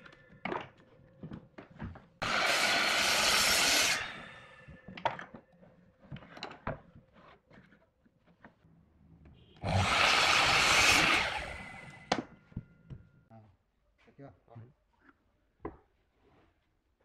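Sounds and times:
power tool cutting wood: 0:02.2 - 0:04.7, 0:09.6 - 0:12.3.

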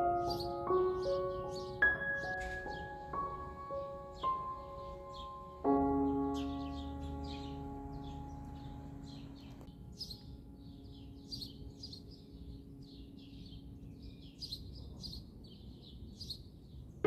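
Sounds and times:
piano tune: 0:00.0 - 0:13.8
songbirds chirping: 0:00.0 - 0:17.0
faint low hum: 0:05.6 - 0:13.9.

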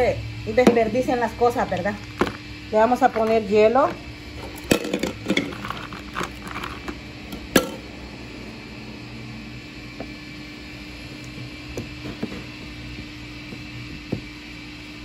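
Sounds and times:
steady low hum: 0:00.0 - 0:15.0
ice cubes clinking in plastic cup: 0:04.6 - 0:06.9.

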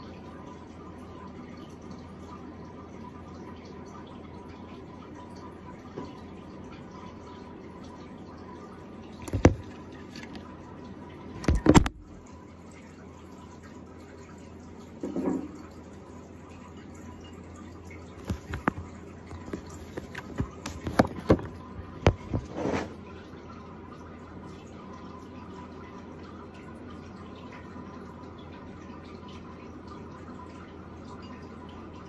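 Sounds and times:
knocks against camera: 0:09.2 - 0:09.7, 0:11.4 - 0:12.0, 0:15.0 - 0:15.5, 0:19.4 - 0:22.9.

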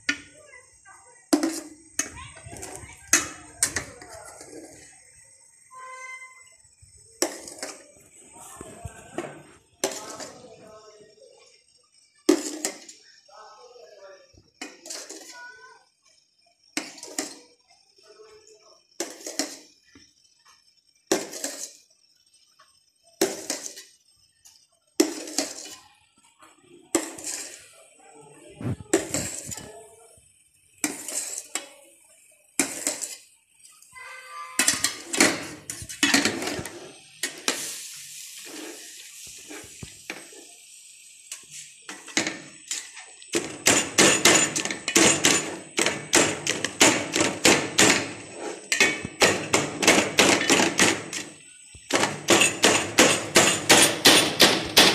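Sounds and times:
metal spatula chopping in a pan: 0:01.3 - 0:04.6, 0:07.2 - 0:07.8, 0:09.2 - 0:10.4, 0:12.3 - 0:12.9, 0:14.6 - 0:15.4, 0:16.8 - 0:17.4, 0:19.0 - 0:19.7, 0:21.1 - 0:21.8, 0:23.2 - 0:24.0, 0:25.0 - 0:25.8, 0:26.9 - 0:27.6, 0:28.9 - 0:29.7, 0:30.8 - 0:31.8, 0:32.6 - 0:33.3, 0:34.6 - 0:40.4, 0:41.3 - 0:54.9.

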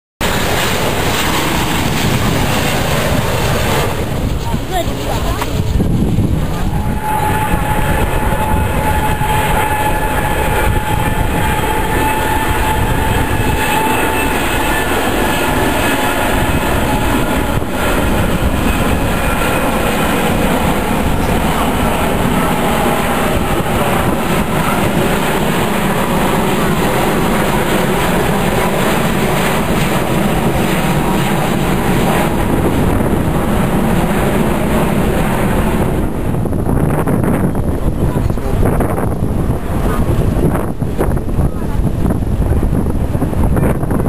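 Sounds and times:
high jet whine: 0:00.2 - 0:44.0
jet engine noise: 0:00.2 - 0:44.0.

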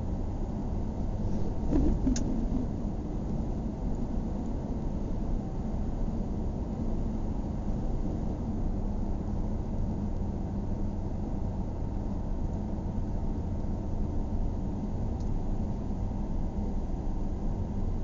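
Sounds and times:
car engine and tyres rumbling: 0:00.3 - 0:10.1.

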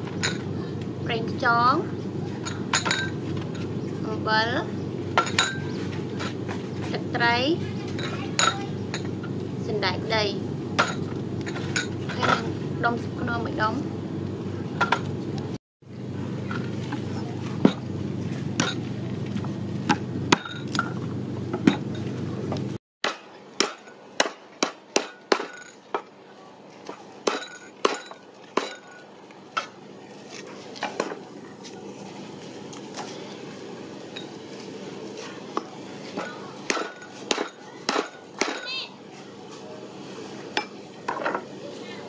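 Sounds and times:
low hum with clicks: 0:13.8 - 0:22.8.

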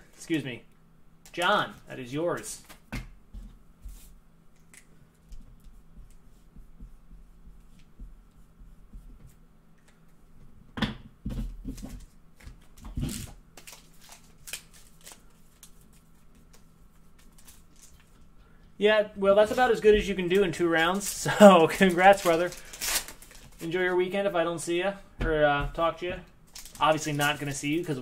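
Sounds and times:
cards being shuffled: 0:11.7 - 0:18.2, 0:19.6 - 0:23.7, 0:26.5 - 0:28.0
foil card pack tearing: 0:13.0 - 0:15.7, 0:20.8 - 0:23.7, 0:26.5 - 0:28.0.

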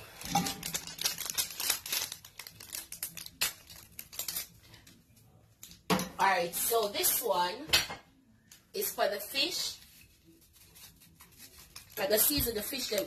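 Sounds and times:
plastic packaging crinkling: 0:00.0 - 0:05.8, 0:09.8 - 0:13.0.

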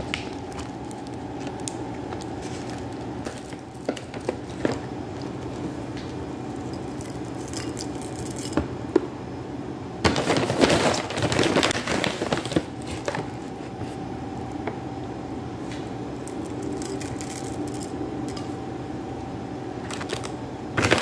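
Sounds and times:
granola crackling and rustling: 0:00.0 - 0:08.6, 0:10.1 - 0:14.0, 0:16.2 - 0:18.4, 0:19.9 - 0:21.0
faint steady hum: 0:00.0 - 0:21.0.

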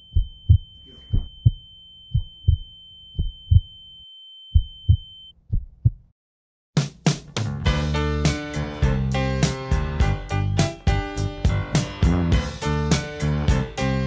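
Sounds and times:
high-pitched ringing tone: 0:00.0 - 0:05.3
heartbeat thumps: 0:00.1 - 0:03.8, 0:04.5 - 0:06.1.

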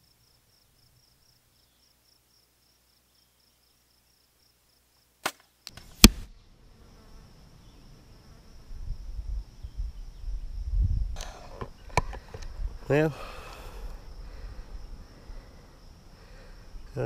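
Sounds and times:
insects chirping: 0:00.0 - 0:17.0
arrow striking bone: 0:05.2 - 0:06.3.

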